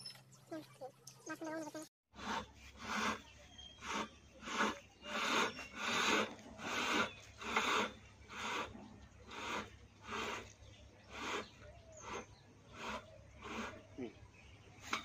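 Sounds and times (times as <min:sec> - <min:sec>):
rope rasping over pole: 0:02.1 - 0:14.1.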